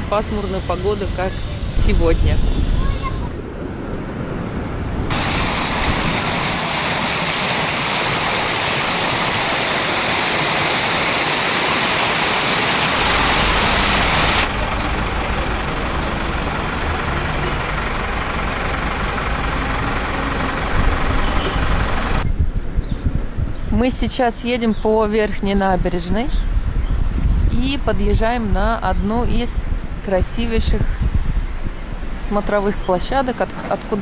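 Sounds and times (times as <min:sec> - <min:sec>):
steady outdoor noise: 0:00.0 - 0:34.0
water rushing down a cascade: 0:05.1 - 0:16.7.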